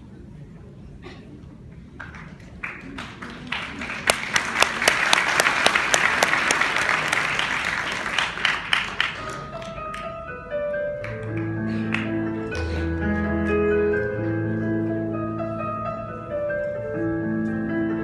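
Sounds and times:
audience applause: 2.0s - 10.2s.

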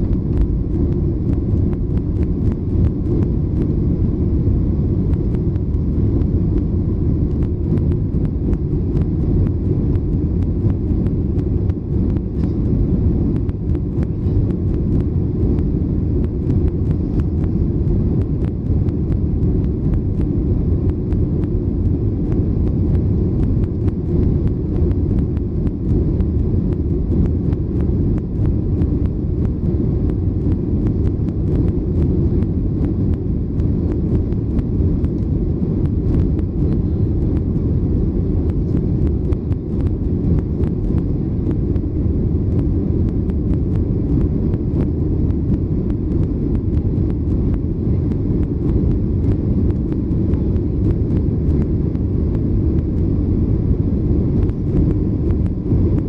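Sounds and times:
jet engine rumble inside cabin: 0.0s - 56.0s.

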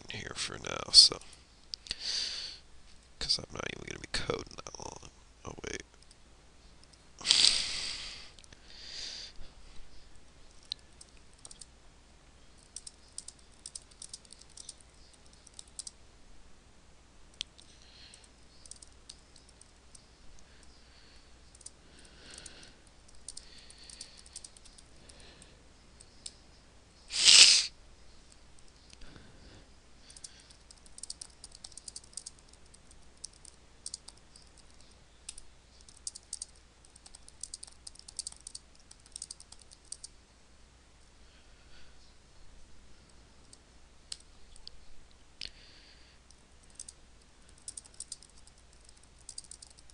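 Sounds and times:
keyboard typing clicks: 10.6s - 11.7s, 12.6s - 16.0s, 18.2s - 20.0s, 30.1s - 40.1s, 46.6s - 49.9s
brief hissing sounds: 27.1s - 27.7s.

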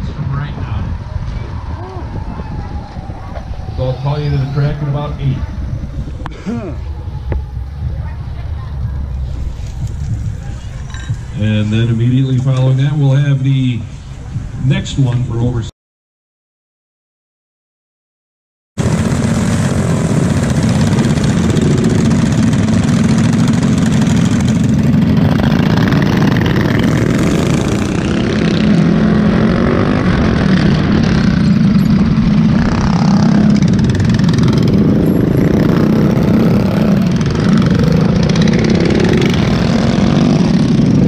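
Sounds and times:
small engine running hard: 18.8s - 41.0s.

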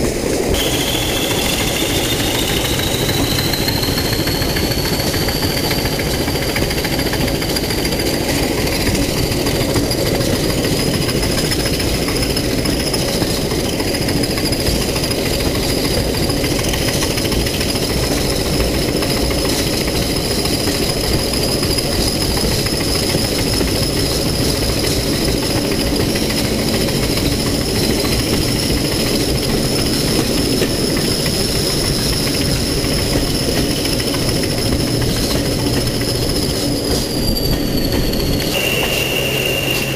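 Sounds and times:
diesel locomotive engines: 0.0s - 39.9s
train wheels on rails: 0.0s - 39.9s
high whistle: 0.5s - 6.6s, 36.8s - 39.9s.

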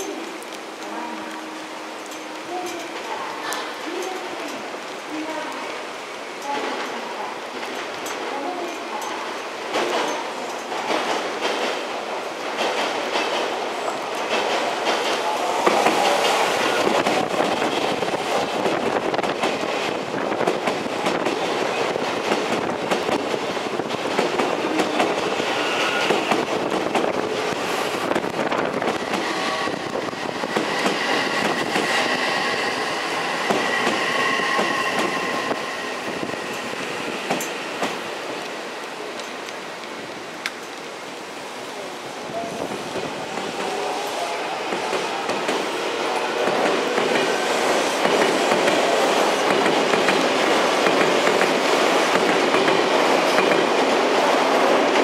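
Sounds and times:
train wheels clattering over rail joints: 6.5s - 40.9s, 46.4s - 55.0s.

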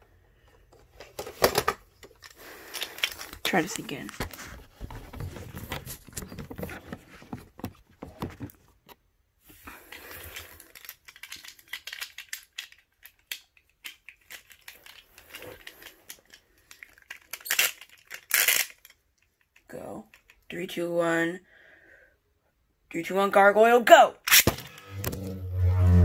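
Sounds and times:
plastic clicks and rattles: 9.9s - 20.5s.

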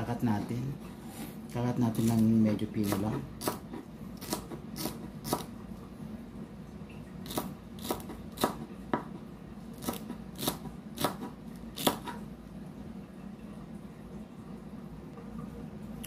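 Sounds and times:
knife chopping on wooden board: 2.8s - 5.5s, 7.3s - 9.2s, 9.8s - 12.2s.

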